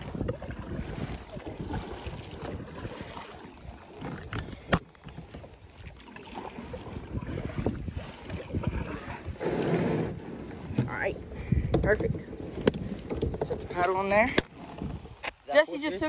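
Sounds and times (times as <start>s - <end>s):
wind buffeting microphone: 0.0s - 5.7s, 6.6s - 15.3s
water moving around kayak hull: 0.0s - 15.9s
hull scraping on gravel: 8.6s - 11.1s.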